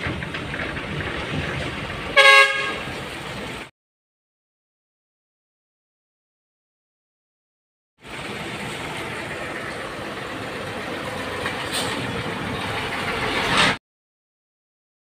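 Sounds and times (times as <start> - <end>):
dump trucks driving past: 0.0 - 3.7, 8.0 - 13.8.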